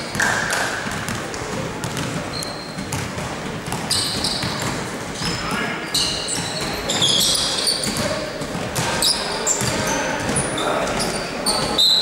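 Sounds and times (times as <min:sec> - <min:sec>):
basketball bouncing: 0:00.0 - 0:05.4, 0:07.8 - 0:11.7
shoes squeaking on court floor: 0:00.0 - 0:12.0.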